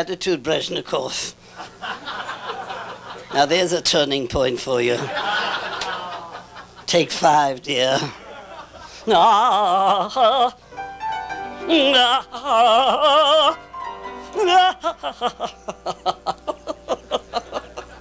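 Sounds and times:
person singing operatically: 9.1 - 10.6, 11.6 - 15.5.

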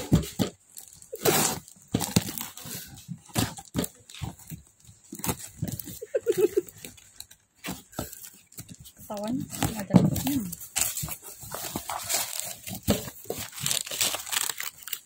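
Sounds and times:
plastic wrap crinkling and ripping: 0.0 - 15.0
knife slitting plastic wrap: 0.8 - 2.8, 11.8 - 15.0.

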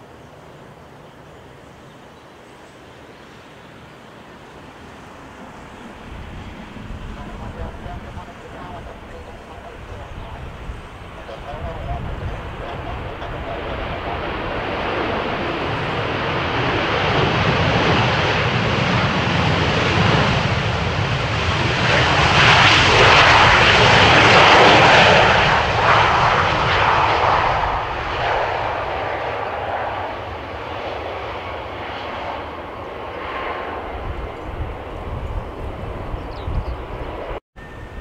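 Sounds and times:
jet engines roaring: 3.0 - 38.0.

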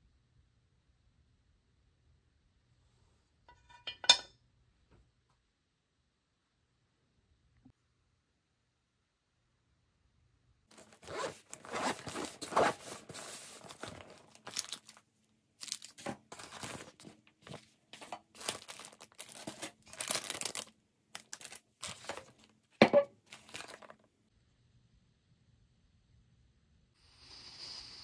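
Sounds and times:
cooler bag unzipping: 10.7 - 14.8
plastic bags rustling: 10.7 - 24.1.

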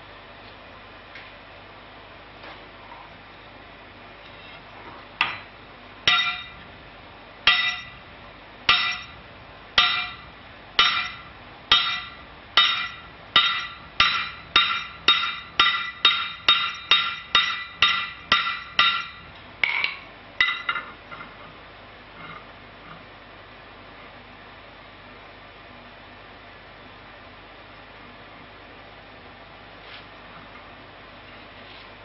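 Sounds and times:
hammer striking hot steel: 6.1 - 6.6, 7.5 - 8.0, 8.7 - 9.2, 9.8 - 20.9.

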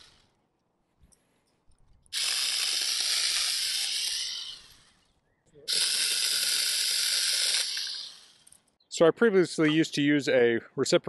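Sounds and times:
mini chainsaw cutting branch: 2.1 - 5.1, 5.7 - 8.6.

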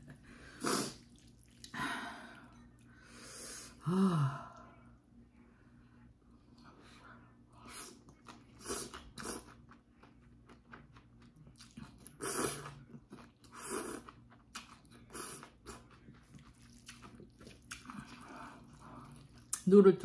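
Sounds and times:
person slurping noodles: 0.5 - 1.3, 12.2 - 12.8.

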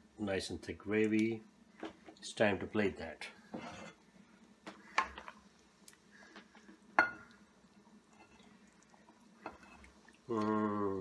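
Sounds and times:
man humming: 10.3 - 11.0.

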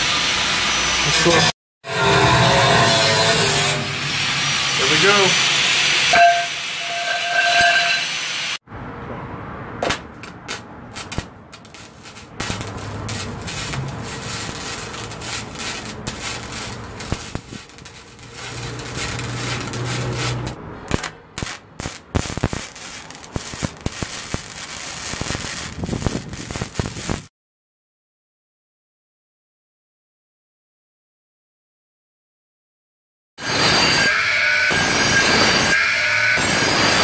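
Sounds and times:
arc welding crackle and sizzle: 3.0 - 8.6, 10.2 - 27.3, 33.4 - 37.0.

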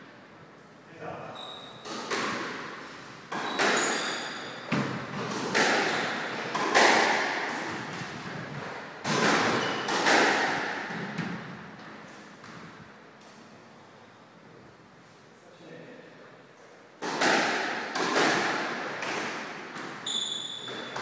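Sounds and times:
squash ball hits echoing: 1.8 - 11.8, 17.0 - 21.0.

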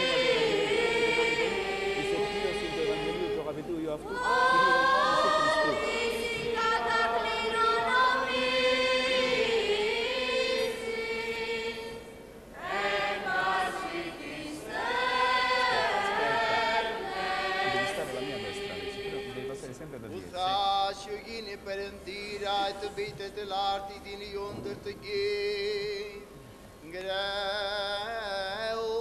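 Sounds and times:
choir chanting: 0.0 - 19.8.

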